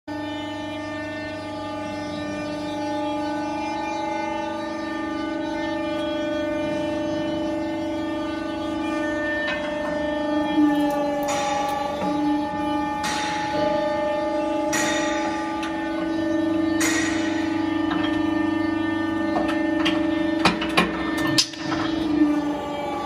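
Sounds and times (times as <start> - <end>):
motor and hydraulic pump humming: 0.1 - 23.0.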